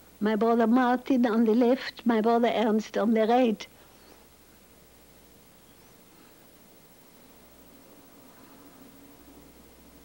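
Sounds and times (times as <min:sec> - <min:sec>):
recording hiss: 0:00.0 - 0:10.0.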